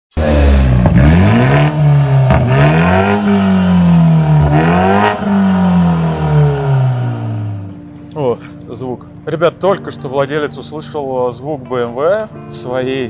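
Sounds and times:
car engine revving through exhaust: 0.1 - 7.7.

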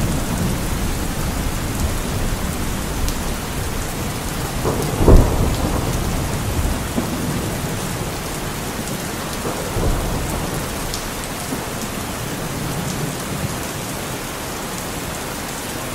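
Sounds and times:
low rumble of thunder: 0.0 - 14.1
steady rain falling: 0.0 - 15.9.

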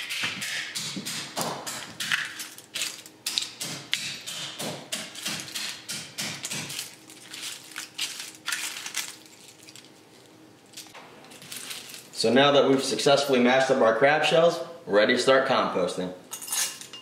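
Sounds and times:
mallet cracking crab shells: 0.0 - 9.3.

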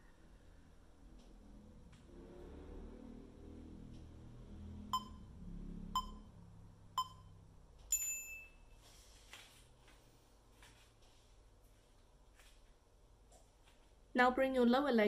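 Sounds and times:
interval timer beeps: 4.9 - 8.7
long high-pitched beep: 5.0 - 5.2, 6.0 - 6.3, 7.0 - 7.3
rustling on foam mat: 8.8 - 12.8.

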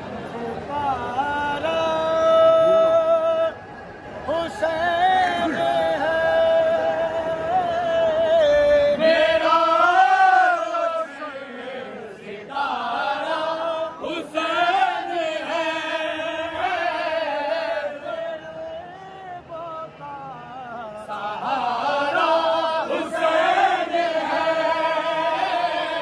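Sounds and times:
men chanting together: 4.3 - 19.9, 20.7 - 26.0.

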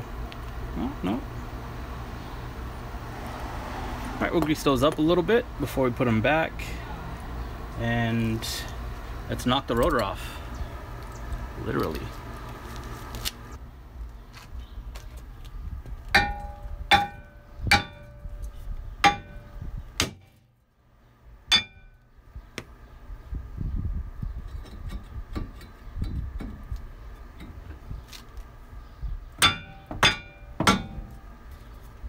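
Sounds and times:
hammer striking metal rotor: 16.2 - 18.2, 19.0 - 20.3, 21.5 - 21.9, 29.4 - 31.2.

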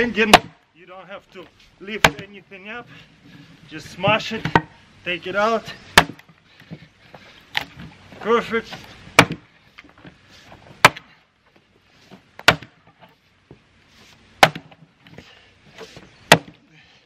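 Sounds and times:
axe chopping wood: 0.2 - 0.6, 1.9 - 2.4, 5.9 - 6.4, 8.7 - 9.5, 10.7 - 11.2, 12.4 - 13.0, 14.4 - 14.9, 16.2 - 16.6.

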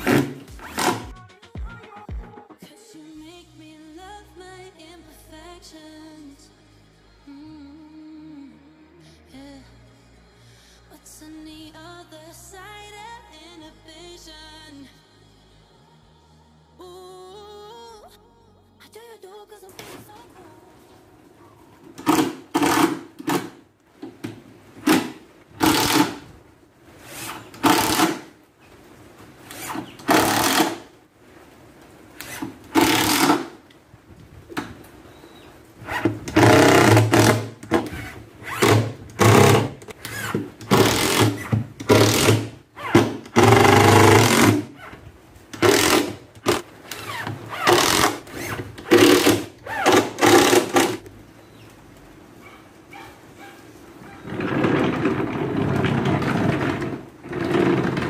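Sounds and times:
cordless drill driving screws: 22.0 - 23.5, 24.8 - 26.2, 27.1 - 28.3, 29.6 - 30.9, 32.3 - 33.5, 36.3 - 37.9, 38.6 - 44.6, 45.6 - 47.0, 47.6 - 51.0.

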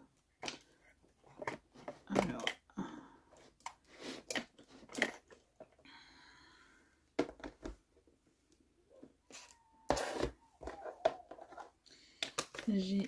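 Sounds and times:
craft supplies knocking and rustling: 0.3 - 2.6, 7.2 - 7.9, 9.9 - 13.0
plastic boxes clattering: 0.4 - 2.6.

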